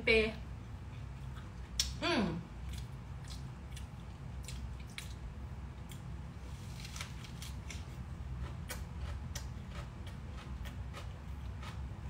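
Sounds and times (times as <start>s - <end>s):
low steady hum: 0.0s - 12.0s
crisp lettuce crunching: 6.4s - 11.8s.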